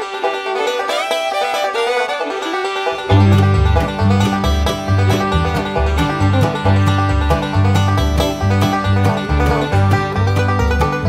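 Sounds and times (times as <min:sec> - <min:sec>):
plucked strings music: 0:00.0 - 0:11.0
deep bass line: 0:03.1 - 0:11.0.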